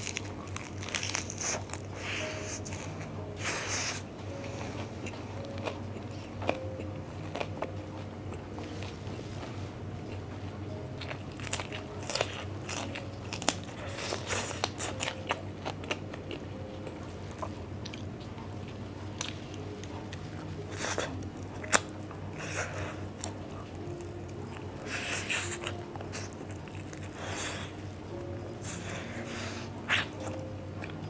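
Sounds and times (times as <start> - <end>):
chewing meat: 0.0 - 31.0.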